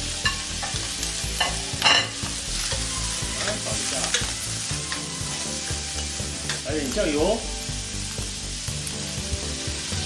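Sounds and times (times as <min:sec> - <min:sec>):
squid sizzling in hot oil: 0:00.0 - 0:10.0
spatula scraping and knocking wok: 0:00.1 - 0:06.7.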